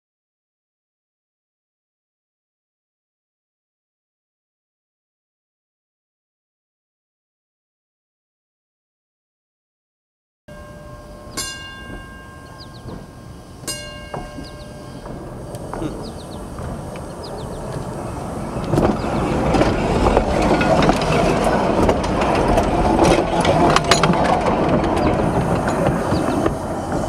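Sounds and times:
streetcar wheels rumbling on rail: 0:10.5 - 0:27.0
wheels clicking and knocking: 0:10.6 - 0:27.0.

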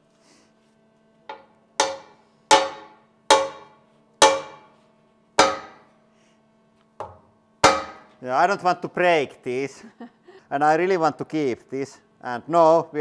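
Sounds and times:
hammers clanking on steel table: 0:01.3 - 0:04.7, 0:05.4 - 0:05.8, 0:07.0 - 0:08.1.

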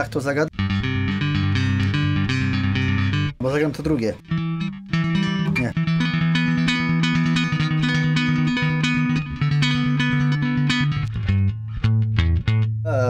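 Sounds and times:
bass guitar riff: 0:00.0 - 0:13.0.

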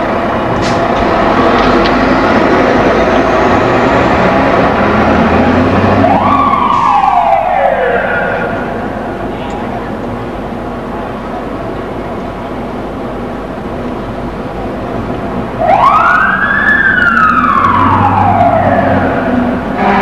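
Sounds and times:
fire engine siren wailing: 0:00.0 - 0:09.3, 0:15.5 - 0:20.0
street traffic: 0:00.0 - 0:20.0
truck engine rumble: 0:00.0 - 0:20.0.

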